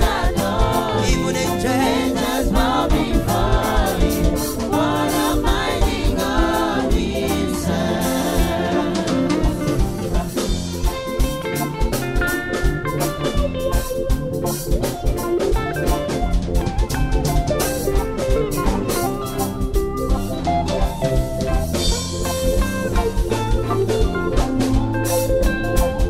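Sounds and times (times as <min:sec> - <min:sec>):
group singing: 0:00.0 - 0:10.5
drum kit: 0:00.0 - 0:26.0
electric guitar: 0:00.0 - 0:26.0.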